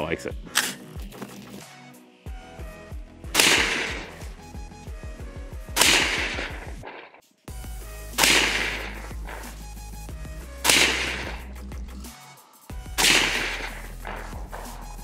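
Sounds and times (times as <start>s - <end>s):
gunshots: 3.3s - 4.4s, 5.7s - 7.2s, 8.2s - 9.6s, 10.6s - 11.5s, 12.9s - 15.0s.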